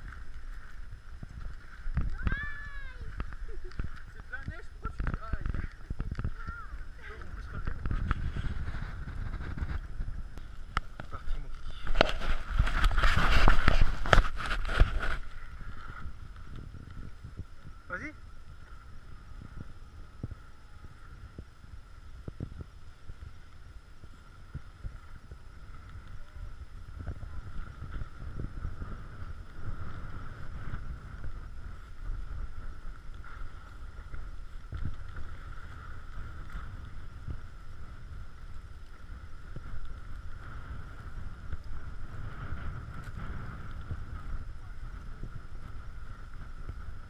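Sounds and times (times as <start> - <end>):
wind buffeting microphone: 0.0 - 47.0
faint high whine: 5.6 - 47.0
skis scraping on snow: 6.9 - 17.3.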